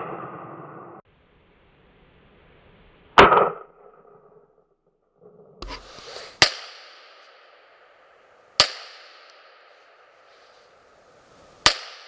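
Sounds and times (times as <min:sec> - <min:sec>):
pistol shot with echo: 0:06.4 - 0:10.2, 0:11.6 - 0:12.0.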